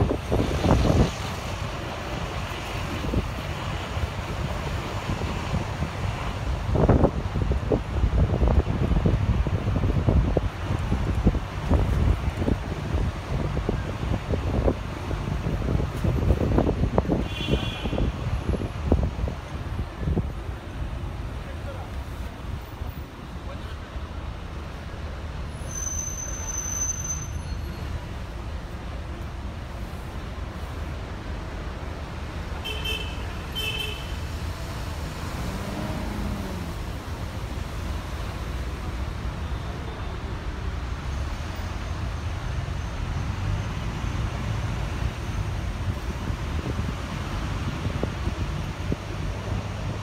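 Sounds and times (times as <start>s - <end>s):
bus engine and road rumble: 0.0s - 50.0s
street traffic: 0.0s - 50.0s.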